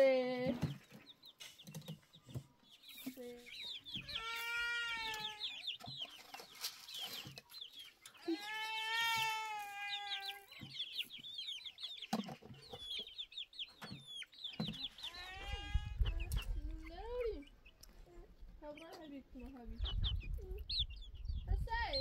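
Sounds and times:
chickens clucking and peeping: 0.0 - 22.0
chicks chirping: 0.1 - 22.0
long drawn-out chicken call: 4.0 - 5.6, 8.2 - 10.6, 15.0 - 16.0.

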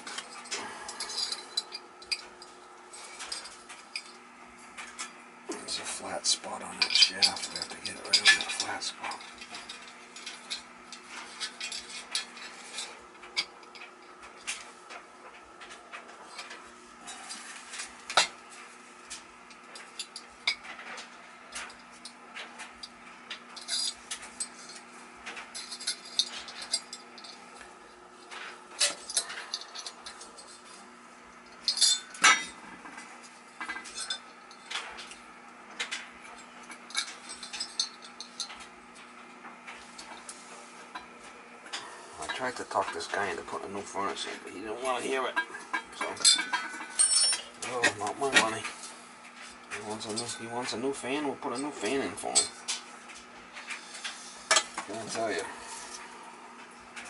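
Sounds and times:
metal parts clinking and knocking: 0.0 - 2.6, 6.7 - 14.6, 19.7 - 27.4, 28.3 - 30.8, 31.5 - 32.6, 45.4 - 48.7
faint steady hum: 0.0 - 57.0.

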